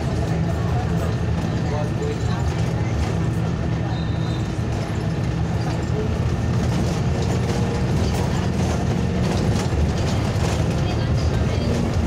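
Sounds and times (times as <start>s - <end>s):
vehicle engine hum: 0.0s - 12.0s
rattling and clicking: 4.7s - 12.0s.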